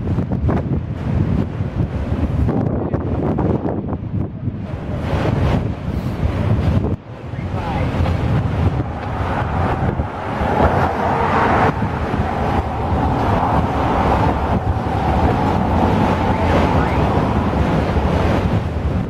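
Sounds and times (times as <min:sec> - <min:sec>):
wind buffeting microphone: 0:00.0 - 0:19.0
thin high whine: 0:07.2 - 0:18.4
train wheels rumbling on rails: 0:07.6 - 0:19.0.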